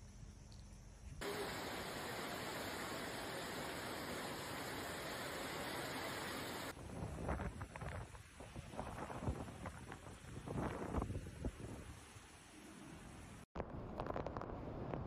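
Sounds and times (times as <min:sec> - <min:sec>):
fast-flowing river: 0:01.2 - 0:06.7
heavy rain pouring: 0:01.2 - 0:06.7
wind rumbling on microphone: 0:06.2 - 0:12.6, 0:13.6 - 0:15.0.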